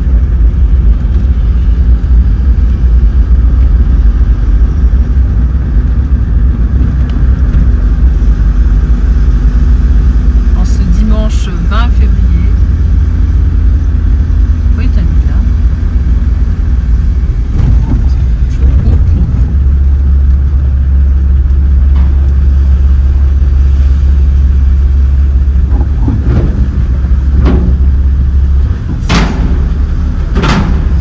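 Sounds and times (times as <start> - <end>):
vehicle engine rumbling: 0.0 - 31.0
sharp knocks: 25.6 - 31.0.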